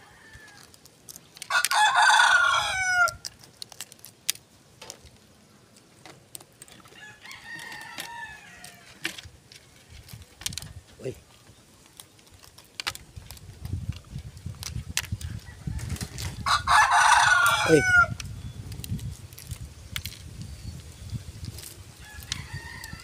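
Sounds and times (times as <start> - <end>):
rooster crowing: 0.0 - 0.7, 1.5 - 3.2, 6.9 - 9.0, 15.3 - 18.2, 22.0 - 23.0.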